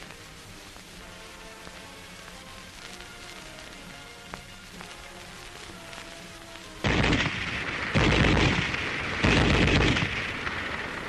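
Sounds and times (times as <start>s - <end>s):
faint background music: 0.0s - 11.0s
submachine gun automatic fire: 6.8s - 10.9s.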